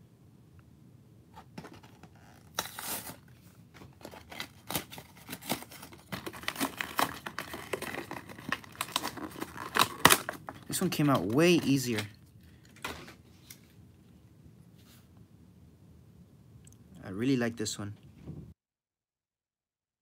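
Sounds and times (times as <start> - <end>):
cardboard ripping: 1.6 - 12.1
plastic crinkling: 1.6 - 13.7.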